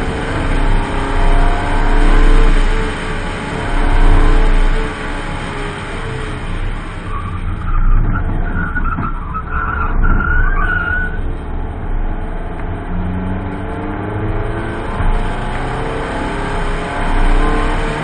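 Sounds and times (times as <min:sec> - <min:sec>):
car engine under load: 0:00.0 - 0:18.0
tyres squealing: 0:07.0 - 0:11.2.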